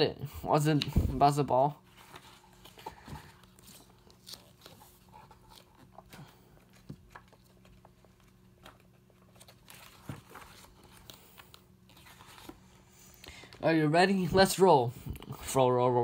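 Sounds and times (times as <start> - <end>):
faint steady hum: 0.0 - 16.0
paper pages flipping: 1.8 - 13.3.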